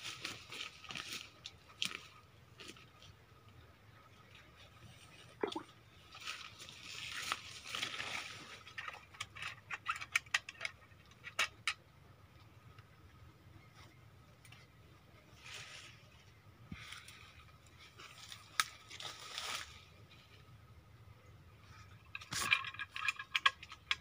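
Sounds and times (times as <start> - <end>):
leaves and undergrowth rustling: 0.0 - 9.3, 13.6 - 20.7.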